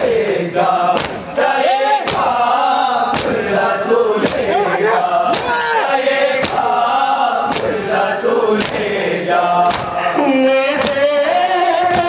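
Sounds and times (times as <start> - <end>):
men chanting a lament: 0.0 - 12.0
hands slapping chests: 0.9 - 1.4, 2.0 - 2.4, 3.1 - 3.5, 4.2 - 4.6, 5.3 - 5.6, 6.4 - 6.8, 7.4 - 7.9, 8.6 - 8.9, 9.6 - 10.0, 10.8 - 11.0.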